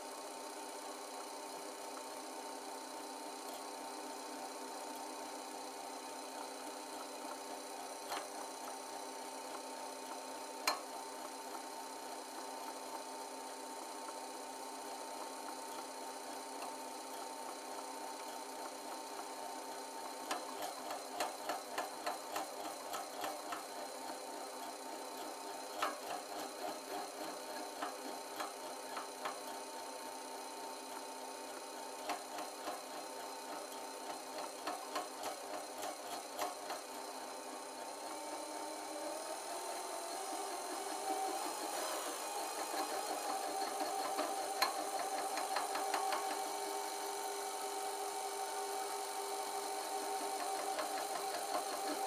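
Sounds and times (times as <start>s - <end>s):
lathe and grinder whine: 14.4s - 52.0s.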